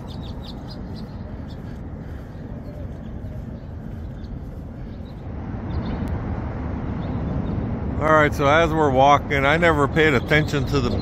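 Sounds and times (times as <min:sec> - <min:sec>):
small birds chirping: 0:00.0 - 0:06.1, 0:09.3 - 0:11.0
traffic rumble: 0:00.0 - 0:11.0.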